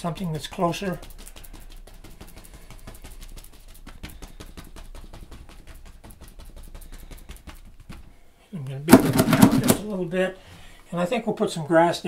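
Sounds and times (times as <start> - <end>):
bristle brush tapping on canvas: 0.6 - 8.1.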